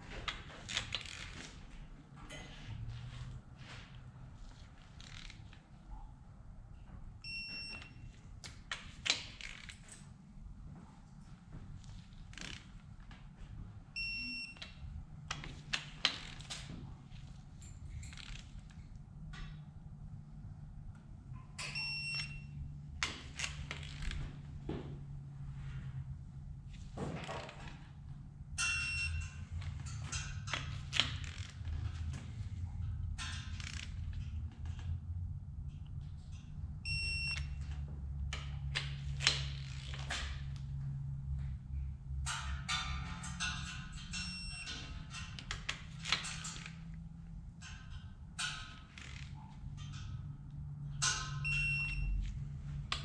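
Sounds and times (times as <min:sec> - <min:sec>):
torque wrench beep: 0:07.2 - 0:08.1, 0:14.0 - 0:14.6, 0:21.6 - 0:22.6, 0:28.6 - 0:29.4, 0:36.9 - 0:37.6, 0:44.2 - 0:44.8, 0:51.4 - 0:52.2
low steady hum: 0:09.7 - 0:53.0.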